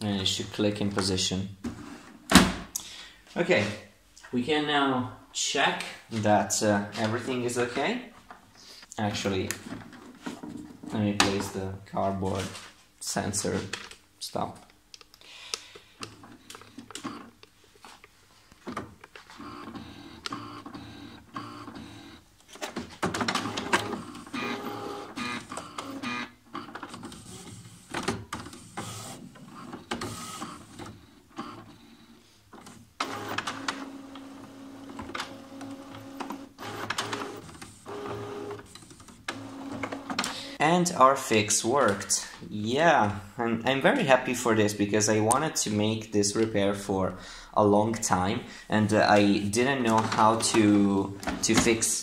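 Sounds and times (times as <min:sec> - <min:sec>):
printer motors whirring: 0:19.4 - 0:22.2, 0:23.3 - 0:40.6.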